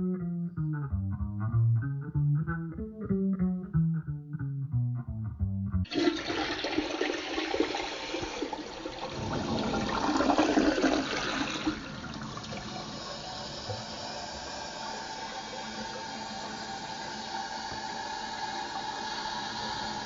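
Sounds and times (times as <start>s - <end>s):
guitar music: 0.0s - 5.9s
rushing water noise: 5.9s - 12.8s.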